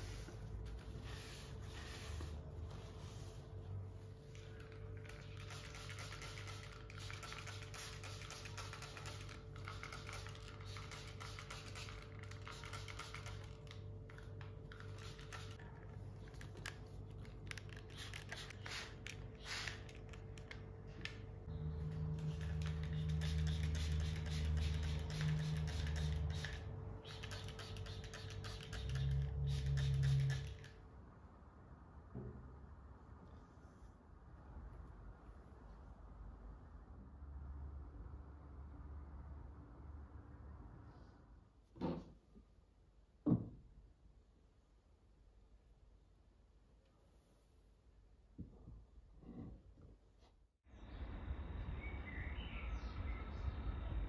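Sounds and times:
spray bottle misting: 4.4 - 15.6, 17.5 - 20.2, 22.2 - 30.8.

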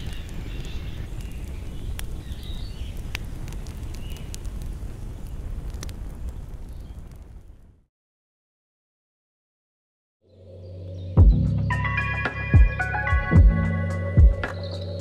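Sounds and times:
faint chirps: 14.0 - 15.0.

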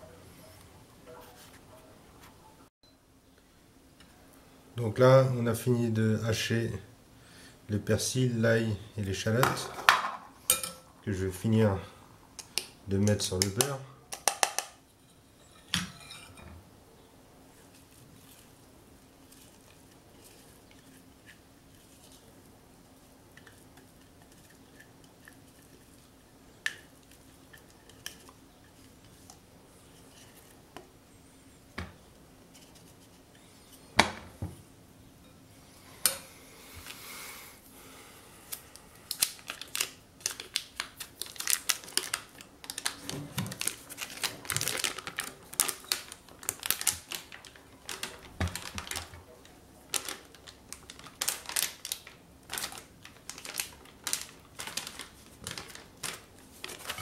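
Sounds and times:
clinks and scraping in bowl: 14.8 - 16.6.

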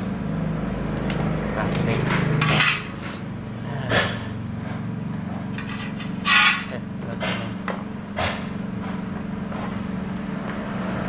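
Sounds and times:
steady low hum: 0.0 - 11.0
metal parts scraping and clicking: 1.9 - 3.2, 5.5 - 7.4.

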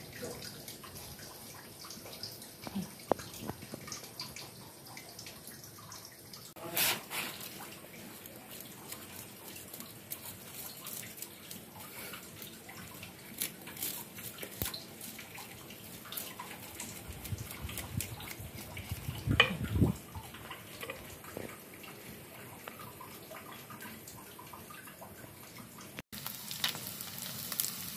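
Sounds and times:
fish sizzling in oil: 6.5 - 24.7, 26.1 - 27.9
knife scraping fish scales: 8.4 - 19.7.

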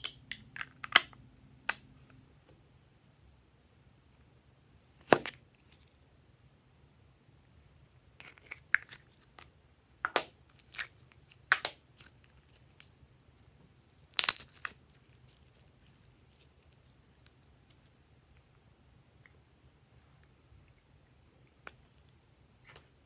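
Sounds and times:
slime snapping: 14.2 - 14.8.

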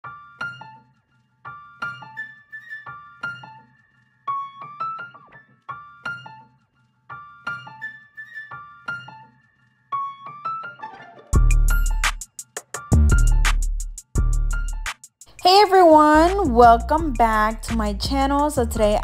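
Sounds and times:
light piano melody: 0.0 - 13.5.

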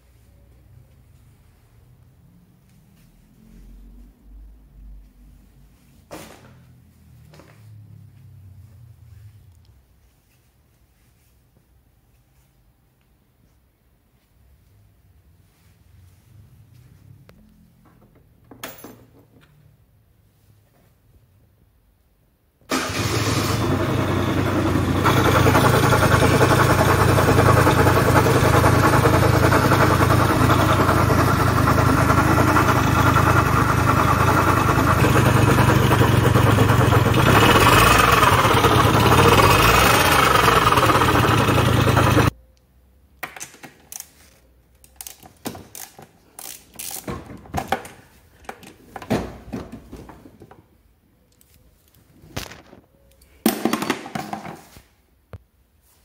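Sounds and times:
scooter engine running and revving: 22.8 - 42.3.

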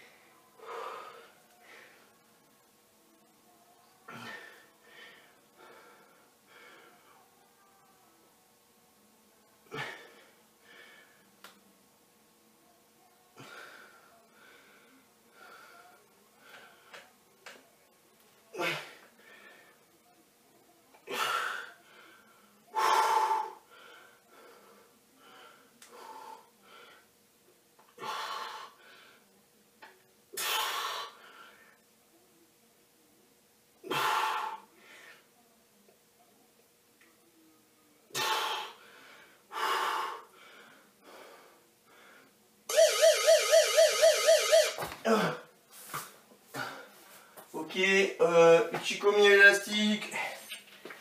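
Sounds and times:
man breathing hard: 38.2 - 42.3.

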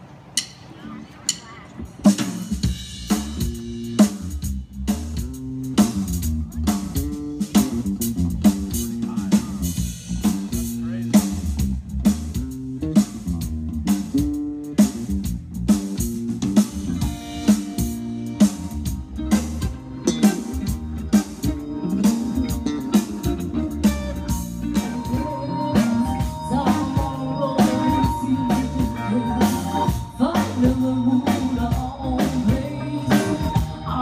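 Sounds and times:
live band over loudspeakers: 0.0 - 34.0
drum kit beat: 0.4 - 34.0
electric bass: 2.0 - 34.0
electric guitar: 16.0 - 34.0.

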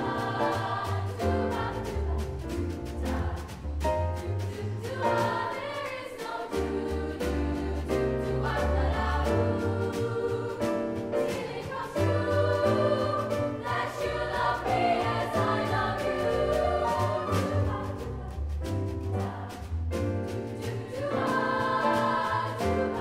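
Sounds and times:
girls' choir singing: 0.0 - 18.5, 20.3 - 23.0
double bass playing: 0.9 - 5.1, 14.1 - 20.4.

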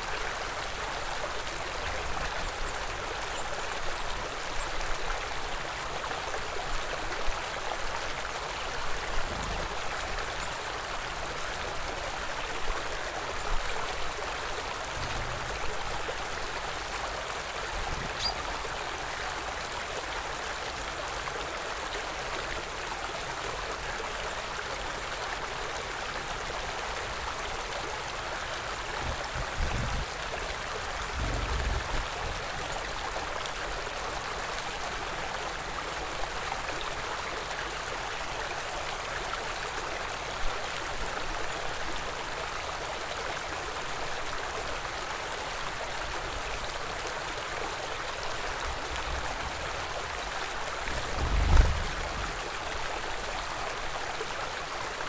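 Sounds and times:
stream water rushing: 0.0 - 55.0
low rumbles: 50.9 - 52.5.

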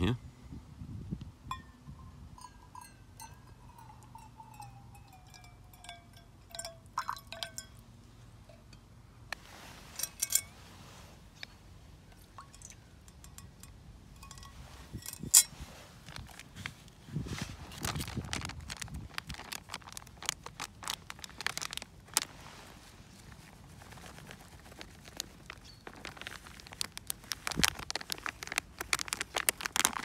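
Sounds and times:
metal cup clinking: 1.5 - 7.8, 10.0 - 10.5, 12.3 - 15.5
water pouring into metal cup: 6.5 - 7.6.

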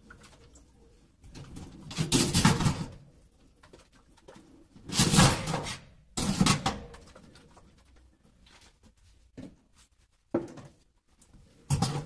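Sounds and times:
metal grates clattering on a sink: 1.8 - 3.0.

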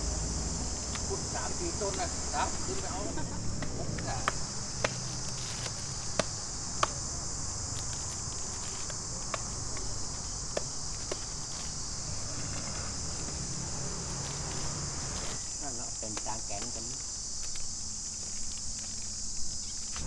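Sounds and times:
insects droning: 0.0 - 20.0
knife chopping fruit: 3.6 - 7.1.

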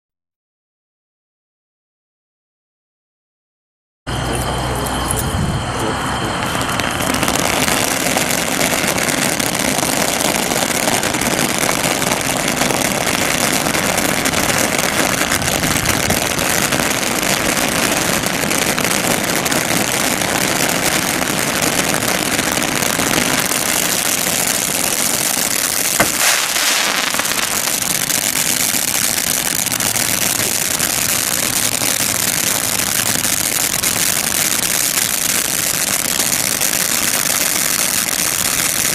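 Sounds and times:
firework spraying sparks hissing: 6.4 - 38.9
sharp crack: 22.0 - 38.9.

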